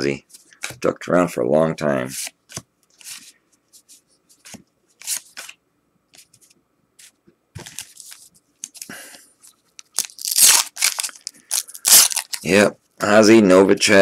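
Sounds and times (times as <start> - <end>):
wax paper tearing: 9.8 - 12.5.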